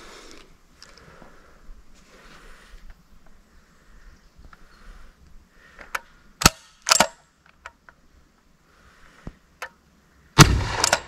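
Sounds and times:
grenade launcher shots: 10.4s - 11.0s.

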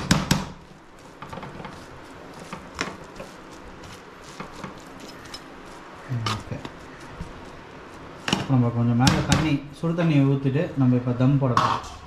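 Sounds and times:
faint steady hiss: 0.0s - 12.0s
metal spoon scraping metal pot: 4.4s - 6.5s.

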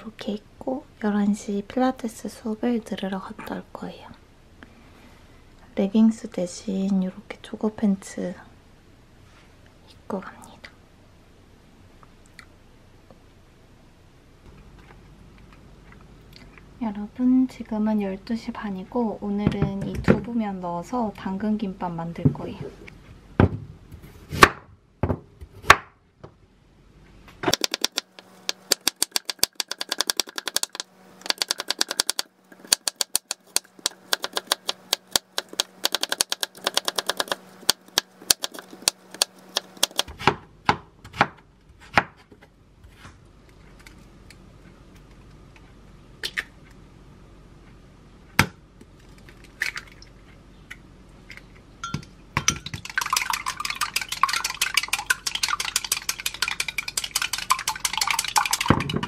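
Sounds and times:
utensil beating egg in glass: 27.5s - 40.1s, 52.5s - 59.0s
knife chopping on wooden board: 28.7s - 42.2s.

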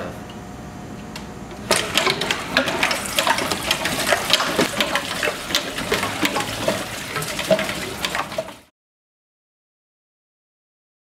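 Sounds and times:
pump clicking and rattling: 1.5s - 8.7s
water splashing into steel bowl: 1.7s - 8.7s.

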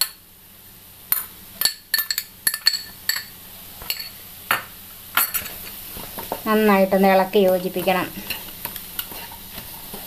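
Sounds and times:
glass bowl clinking on pan: 1.1s - 5.5s.

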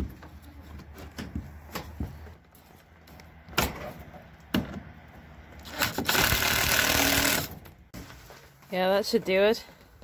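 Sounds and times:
cordless drill running: 5.7s - 7.5s.

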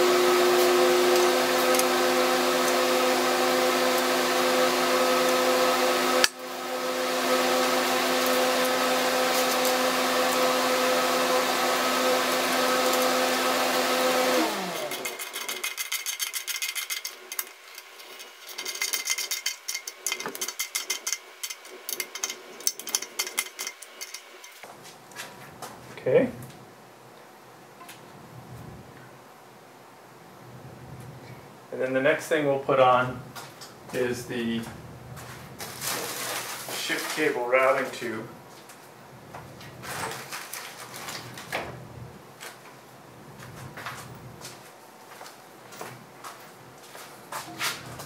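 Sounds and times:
electric motor humming: 0.0s - 24.6s
hand tools clicking and rattling: 14.6s - 24.7s.

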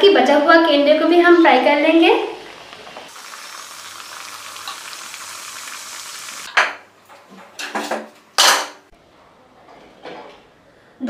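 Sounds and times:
food sizzling in hot oil: 1.4s - 6.5s.

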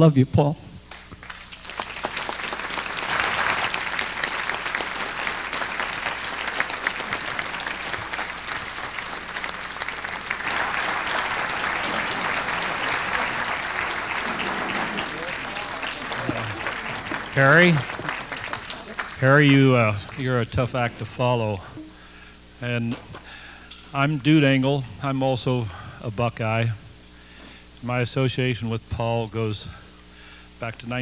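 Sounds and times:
audience applauding: 0.9s - 21.9s.

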